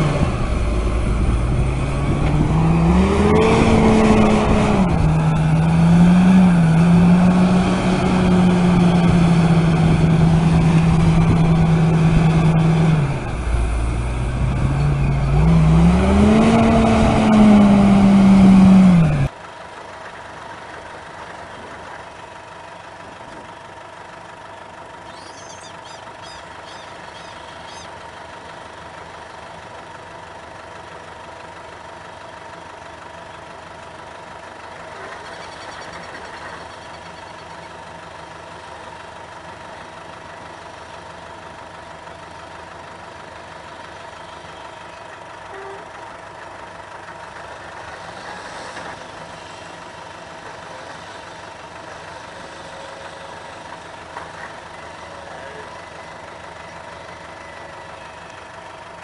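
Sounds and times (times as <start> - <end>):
tractor engine revving: 0.0 - 19.3
combine harvester humming: 0.0 - 59.0.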